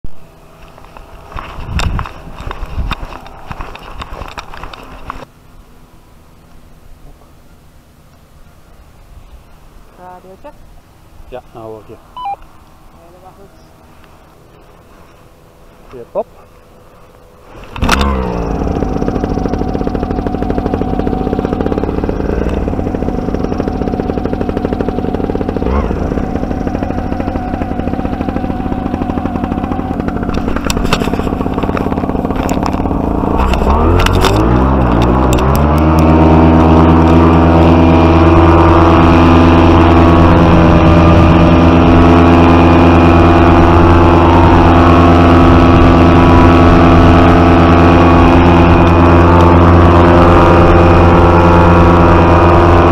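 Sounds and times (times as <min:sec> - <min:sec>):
paramotor engine revving: 0:17.4 - 0:52.9.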